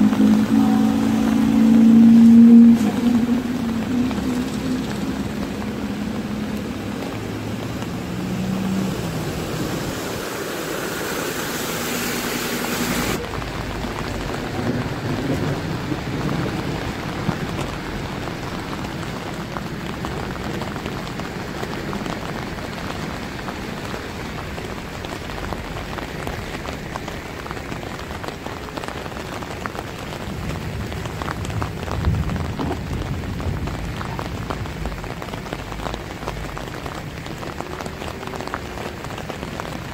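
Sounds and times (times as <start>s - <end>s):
minibus engine running: 0.0s - 16.9s
heavy rain on flooded street: 0.0s - 39.9s.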